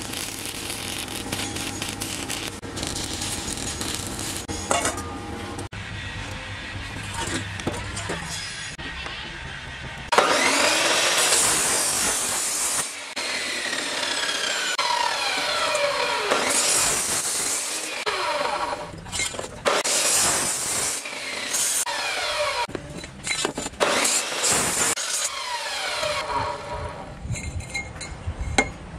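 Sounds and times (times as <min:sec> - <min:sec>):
chop saw cutting steel pipe: 0:10.1 - 0:27.0.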